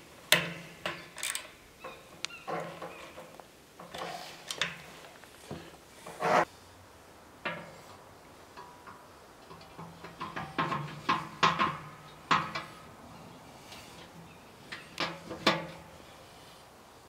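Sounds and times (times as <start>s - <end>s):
metallic clicks and knocks: 0.3s - 6.2s, 8.5s - 12.9s, 14.7s - 15.9s.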